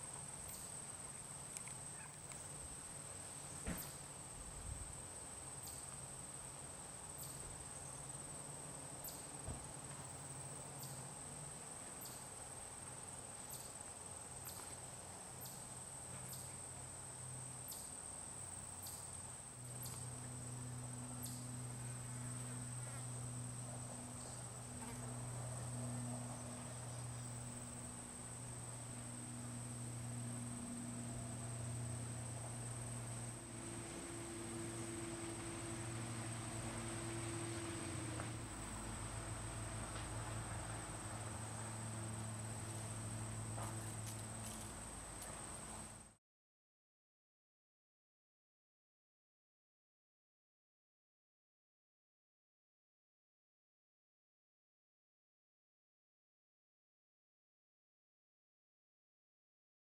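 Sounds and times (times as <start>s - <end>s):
high-pitched insect trill: 0.4s - 2.7s, 5.3s - 8.4s, 9.0s - 11.1s, 13.4s - 40.0s
faint ticks: 1.5s - 2.5s
low hum: 18.4s - 44.2s.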